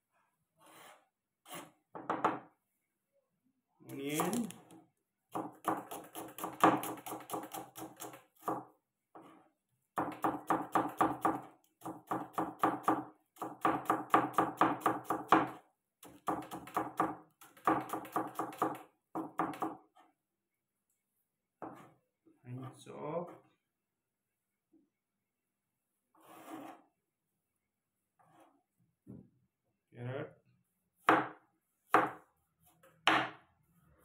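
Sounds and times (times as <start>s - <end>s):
knife chopping on wooden board: 4.1s - 4.6s, 5.3s - 9.4s, 10.0s - 19.9s, 21.6s - 21.9s, 31.0s - 32.3s.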